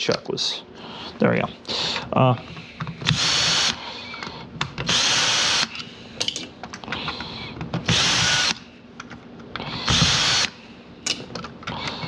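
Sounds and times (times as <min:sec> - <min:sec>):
drill-driver motor whine: 0:03.0 - 0:03.8, 0:04.9 - 0:05.8, 0:07.9 - 0:08.6, 0:09.8 - 0:10.5.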